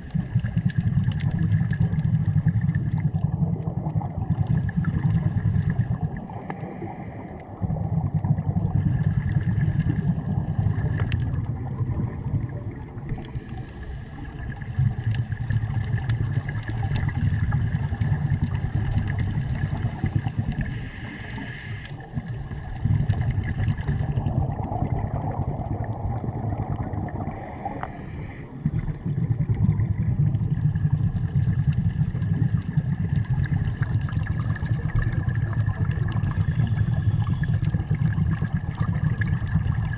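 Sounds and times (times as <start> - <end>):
underwater bubbling: 0.0 - 39.9
hissing regulator inhalations: 6.2 - 7.4, 13.1 - 15.3, 19.8 - 22.1, 27.3 - 28.6.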